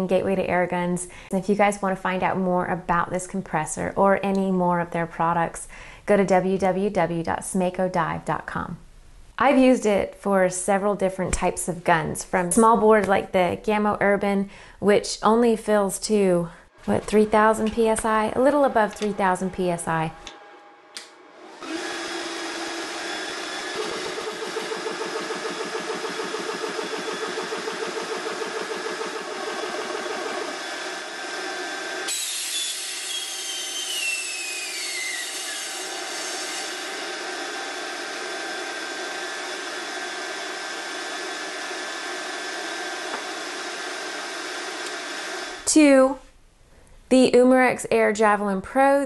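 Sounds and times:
air compressor running: 20.1s - 45.7s.

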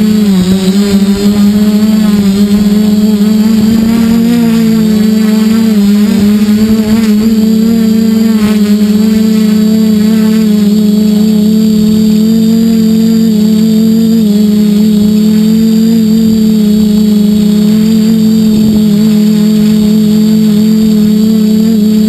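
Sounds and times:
quadcopter propellers whining: 0.0s - 22.0s.

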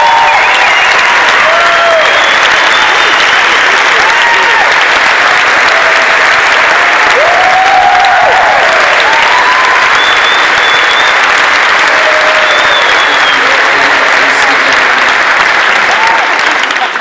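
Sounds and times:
cheers and whoops: 0.0s - 13.9s, 15.6s - 16.8s
audience applauding: 0.0s - 17.0s
short whistles: 10.0s - 11.2s.

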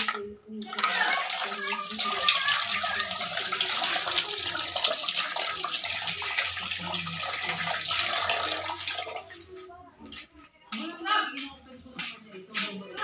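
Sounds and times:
water running from a tap: 0.0s - 9.4s.

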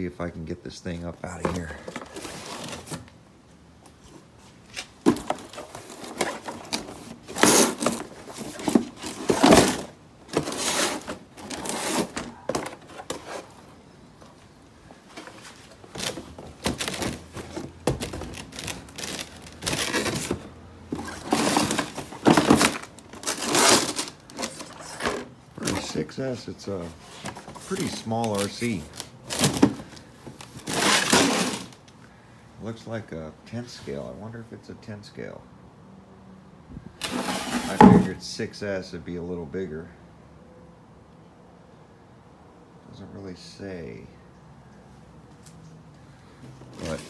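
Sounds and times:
cardboard rustling and scraping: 1.3s - 3.2s, 3.9s - 14.4s, 15.0s - 31.8s, 37.0s - 38.2s, 46.7s - 47.0s.

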